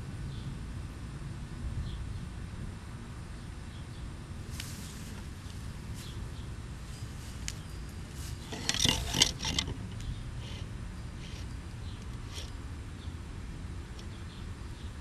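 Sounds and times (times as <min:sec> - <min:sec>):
light clicks and scraping: 0:04.5 - 0:06.2, 0:06.9 - 0:12.6.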